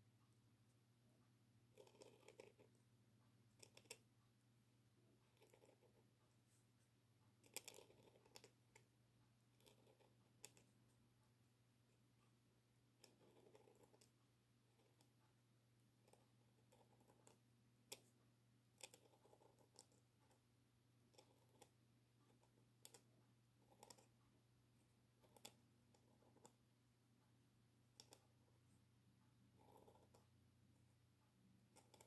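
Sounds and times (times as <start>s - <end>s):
faint steady hum: 0.0s - 32.0s
pen nib ticks: 1.7s - 2.7s, 3.6s - 4.0s, 25.2s - 26.6s, 31.7s - 32.0s
pen nib scratching on paper: 1.7s - 2.8s, 3.5s - 4.1s, 5.2s - 6.6s, 7.4s - 8.9s, 9.5s - 10.8s, 13.0s - 15.2s, 16.0s - 18.2s, 18.8s - 20.4s, 21.0s - 24.2s, 25.2s - 26.6s, 27.9s - 28.4s, 29.4s - 30.4s, 31.6s - 32.0s.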